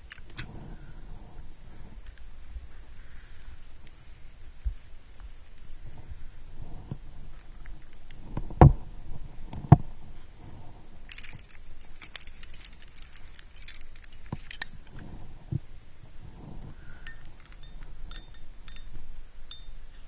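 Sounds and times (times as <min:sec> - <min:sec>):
climbing gear clinking: 0:11.1 - 0:15.0, 0:17.0 - 0:19.8.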